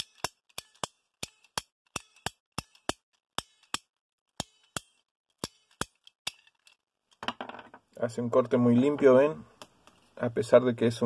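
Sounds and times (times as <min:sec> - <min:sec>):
ratcheting pipe cutter clicking: 0:00.0 - 0:06.8.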